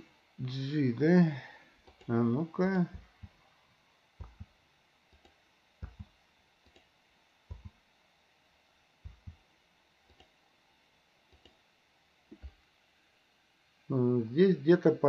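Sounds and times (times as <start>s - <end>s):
keyboard spacebar tapping: 4.2s - 4.5s, 5.2s - 6.1s, 7.5s - 7.8s.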